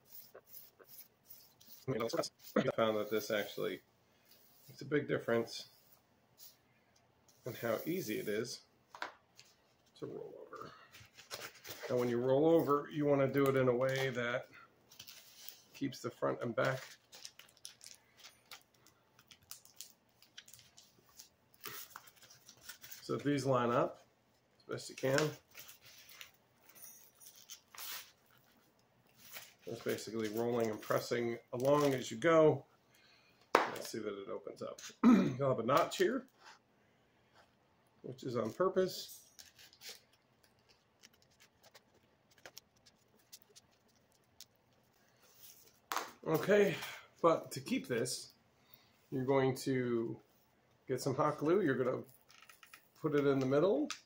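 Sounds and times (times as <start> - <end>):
paper rustle: 10.9 - 12.3, 25.0 - 26.4, 27.2 - 32.1, 39.3 - 46.0.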